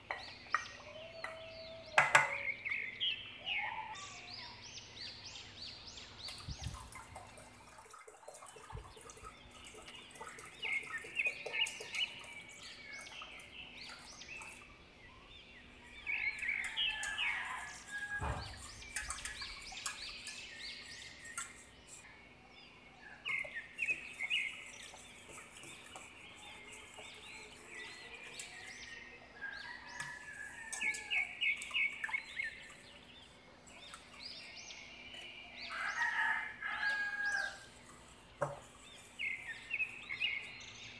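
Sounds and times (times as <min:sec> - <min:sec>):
birds chirping: 0:00.0 - 0:40.9
dull knock: 0:18.2 - 0:18.7.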